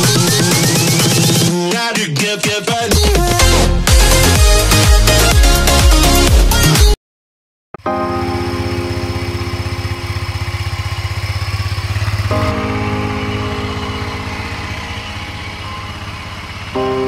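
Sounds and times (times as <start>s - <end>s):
atv engine idling: 8.3s - 17.0s.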